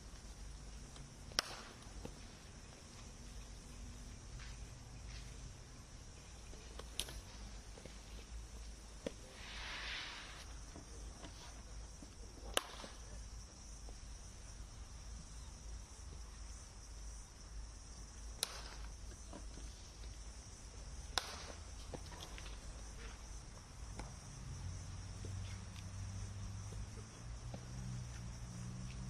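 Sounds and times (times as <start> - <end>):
steady high-pitched hiss: 0.0 - 29.0
cricket bat striking ball: 1.3 - 2.1.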